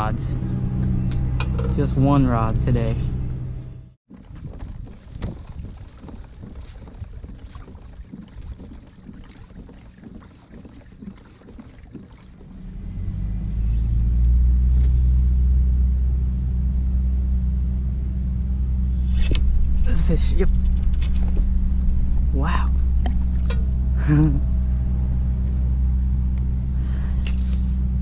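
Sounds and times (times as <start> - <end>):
loud steady low hum: 0.0 - 4.0, 12.4 - 28.0
water against kayak hull: 4.1 - 15.8, 18.1 - 28.0.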